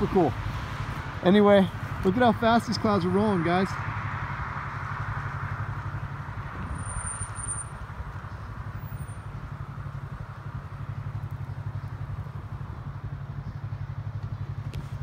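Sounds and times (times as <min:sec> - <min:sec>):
motorcycle engine idling: 0:04.7 - 0:15.0.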